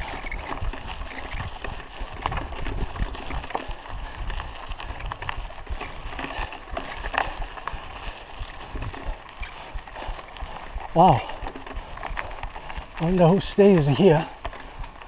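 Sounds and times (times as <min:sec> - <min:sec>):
bike rattling over bumps: 0:00.0 - 0:15.0
bike tyres crunching on gravel: 0:00.0 - 0:15.0
wind rumble on microphone: 0:00.0 - 0:15.0.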